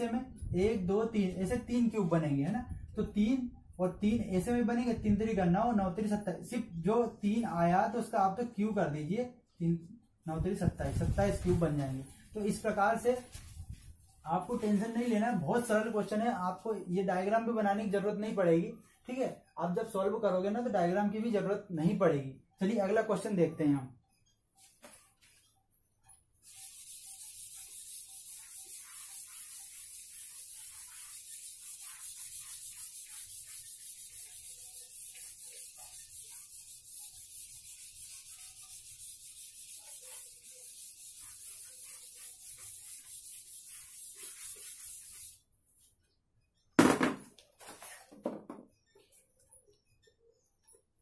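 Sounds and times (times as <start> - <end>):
eraser rubbing on whiteboard: 10.6 - 15.8, 26.4 - 45.4.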